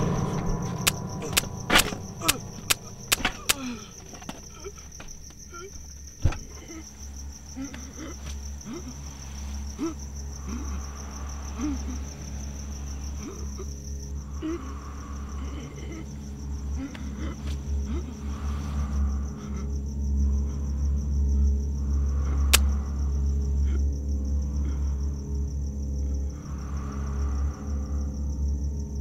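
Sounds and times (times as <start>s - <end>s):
sharp thump: 0.0s - 3.5s
low rumble: 0.0s - 7.6s, 8.4s - 29.0s
crickets chirping: 0.0s - 29.0s.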